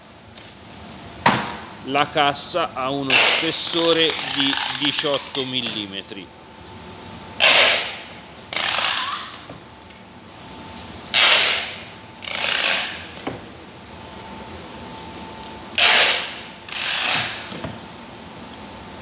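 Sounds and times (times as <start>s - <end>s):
packing tape ripping: 3.1s - 5.8s, 7.4s - 9.5s, 11.0s - 13.2s, 15.7s - 17.5s.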